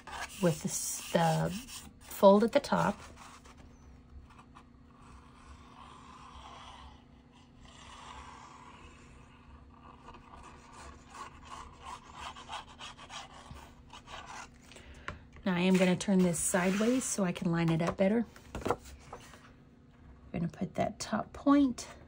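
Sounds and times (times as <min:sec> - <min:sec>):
paper and plastic bottle rubbing: 0:00.0 - 0:03.5.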